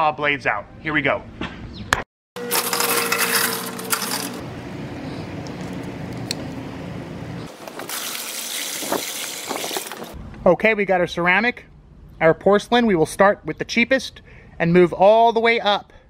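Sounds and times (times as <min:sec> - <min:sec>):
water gushing and splashing: 0:07.5 - 0:10.2.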